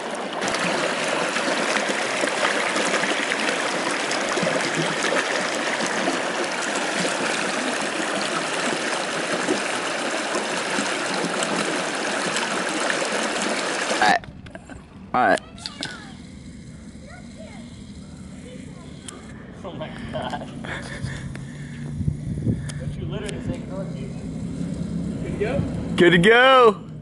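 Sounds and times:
stream running over stones: 0.0s - 14.2s.

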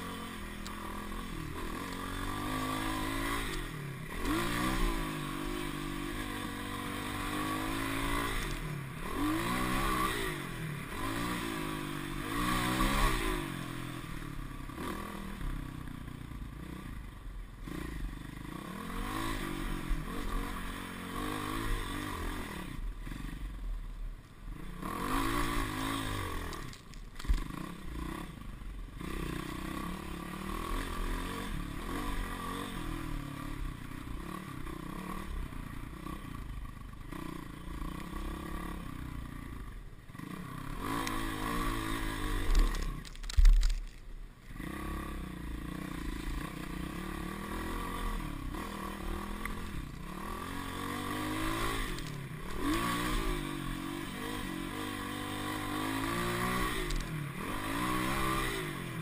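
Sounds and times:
dirt bike engine revving: 0.0s - 15.6s, 17.6s - 23.4s, 24.6s - 36.5s, 37.1s - 43.8s, 44.5s - 59.0s
bike rattling over bumps: 42.2s - 44.1s.

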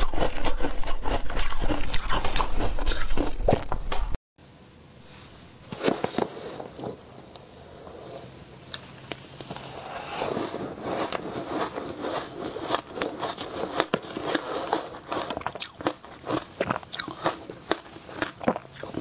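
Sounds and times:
shaved ice being chewed: 0.0s - 3.7s, 9.4s - 19.0s
metal spoon scooping ice: 9.8s - 18.4s.

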